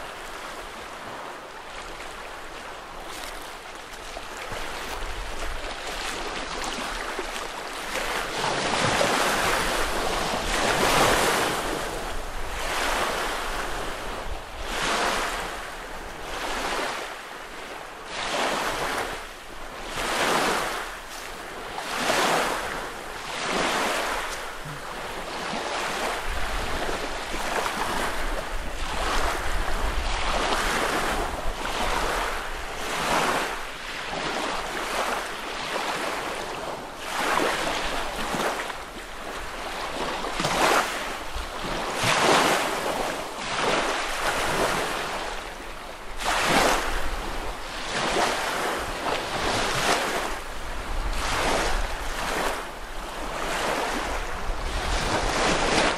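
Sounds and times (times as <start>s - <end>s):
waves lapping onto beach: 0.0s - 55.9s
wind rumbling on microphone: 19.0s - 34.8s, 36.0s - 55.9s.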